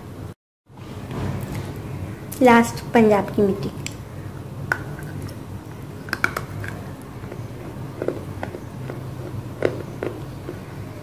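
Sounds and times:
clay being bitten and chewed: 6.1s - 10.7s.

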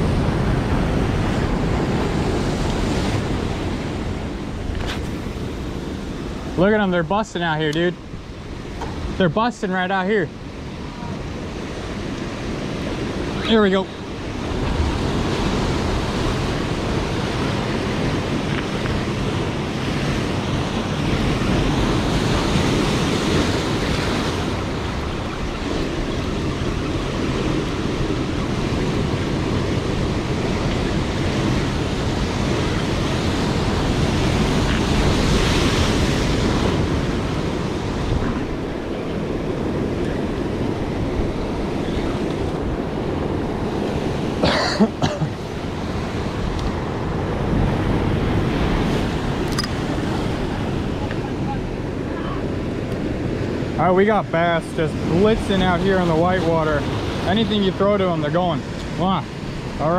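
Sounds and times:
surf breaking over rocks: 0.0s - 59.9s
wind buffeting microphone: 10.2s - 57.8s.

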